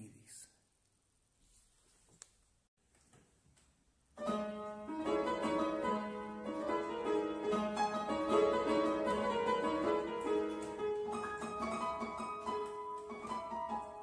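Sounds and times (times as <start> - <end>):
fortepiano playing dance piece: 4.1 - 14.0.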